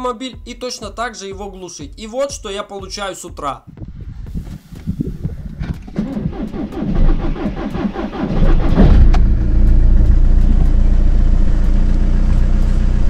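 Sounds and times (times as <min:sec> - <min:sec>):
car engine idling: 0:04.2 - 0:13.0
starter cranking engine: 0:04.7 - 0:13.0.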